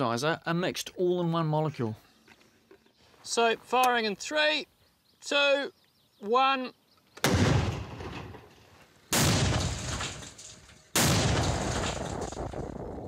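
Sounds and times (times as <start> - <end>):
explosive charge bangs on sheet metal: 9.1 - 12.8.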